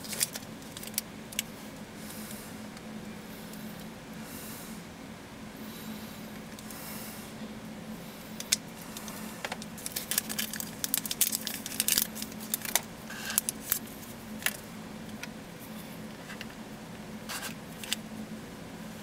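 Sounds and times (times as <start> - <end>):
crinkling rustles: 0.0 - 1.5, 8.4 - 14.7
faint steady hum: 0.0 - 19.0.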